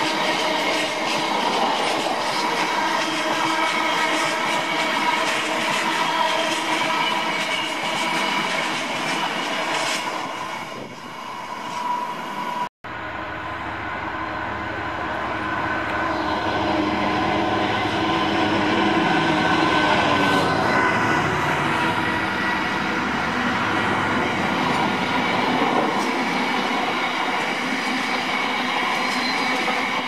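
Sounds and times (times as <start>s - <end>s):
train wheels on rails: 0.0s - 12.7s, 14.7s - 30.0s
diesel locomotive engine: 0.0s - 30.0s.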